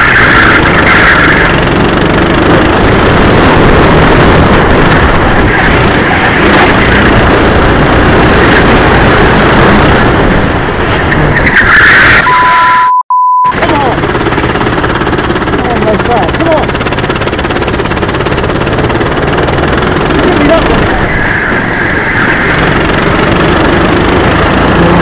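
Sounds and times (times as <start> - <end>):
kart engine running hard: 0.0 - 12.2, 13.5 - 25.0
steady high beep: 11.7 - 13.6.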